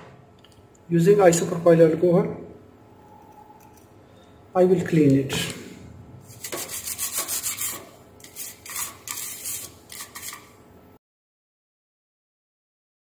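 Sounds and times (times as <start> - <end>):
stiff brush scrubbing circuit board: 6.3 - 10.5.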